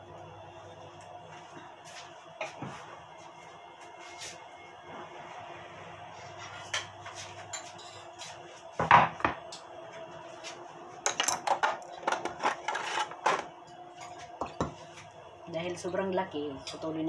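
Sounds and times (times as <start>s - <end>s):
kitchen things clattering: 11.1s - 14.8s.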